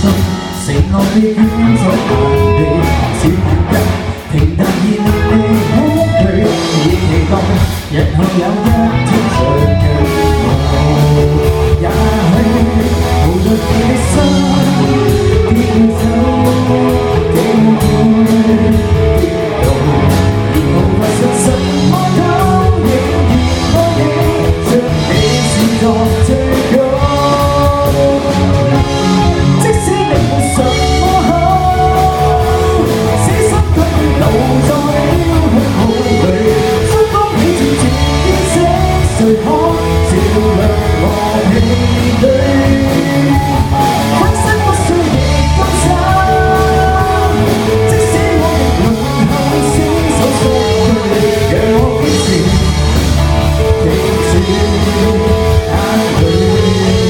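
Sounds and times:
drum kit: 0.0 - 57.0
guitars: 0.0 - 57.0
person singing: 0.0 - 57.0.

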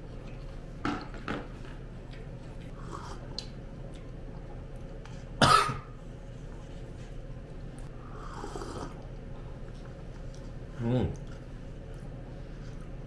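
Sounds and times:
man coughing: 5.4 - 6.0
throat clearing: 5.4 - 6.0.

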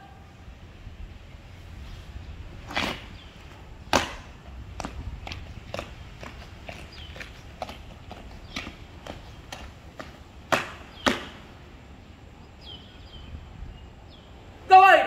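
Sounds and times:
boots marching on asphalt: 2.6 - 11.5
loud foot stamps: 3.9 - 11.4.

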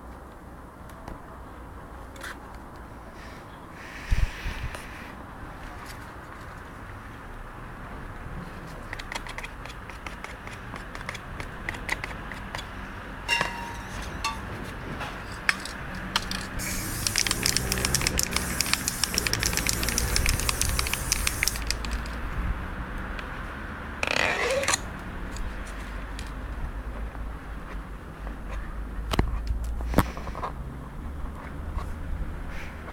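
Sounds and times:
small clicks and crackles: 15.5 - 22.2
spray paint can hissing: 16.3 - 22.1.

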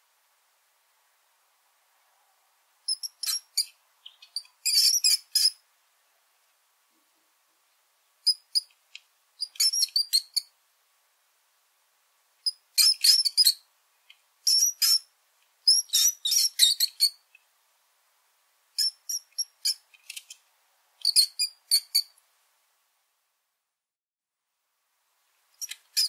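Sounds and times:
mouse squeaking: 2.9 - 5.6, 8.2 - 8.7, 9.4 - 10.5, 12.5 - 13.6, 14.5 - 17.3, 18.8 - 20.4, 21.0 - 22.2, 25.6 - 26.0.

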